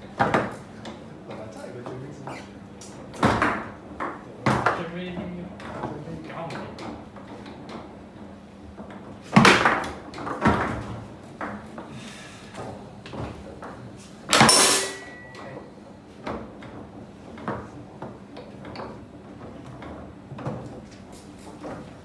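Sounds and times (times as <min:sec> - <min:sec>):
foosball ball and rods knocking: 0:00.1 - 0:01.0, 0:03.2 - 0:04.8, 0:08.7 - 0:11.8.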